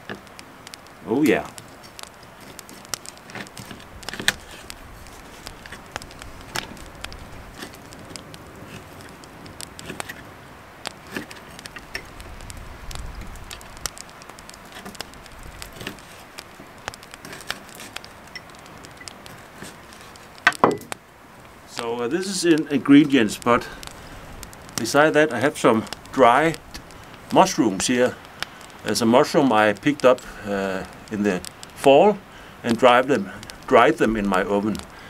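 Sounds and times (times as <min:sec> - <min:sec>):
knife tapping wooden board: 0:20.5 - 0:21.0.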